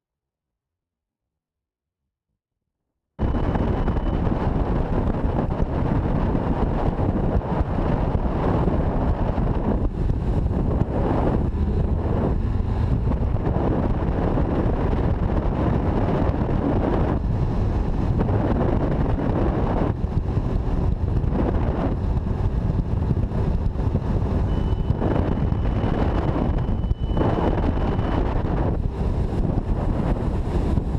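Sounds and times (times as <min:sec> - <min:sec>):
outboard motor at high speed: 0:03.2 - 0:30.9
wind buffeting microphone: 0:03.2 - 0:30.9.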